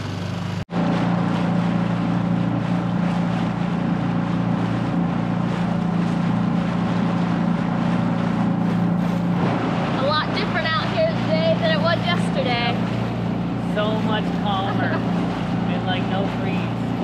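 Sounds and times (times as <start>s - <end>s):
outboard motor running: 0.0s - 17.0s
water noise: 0.0s - 17.0s.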